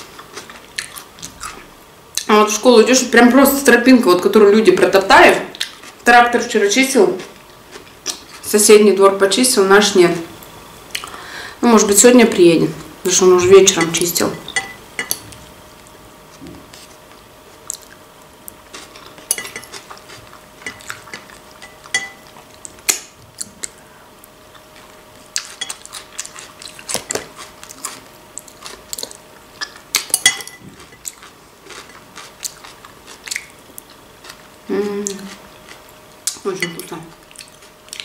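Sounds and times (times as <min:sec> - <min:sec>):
faint steady hum: 0:00.0 - 0:38.0
chewing: 0:00.2 - 0:02.3, 0:17.6 - 0:23.8, 0:24.5 - 0:36.4, 0:37.1 - 0:38.0
fork clicking and scraping in bowl: 0:19.0 - 0:22.2, 0:29.7 - 0:32.5.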